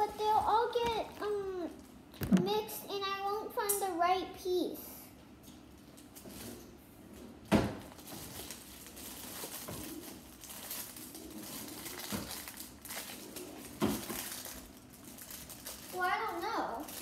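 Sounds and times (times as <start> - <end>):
packaging rustling and crinkling: 7.8 - 17.0.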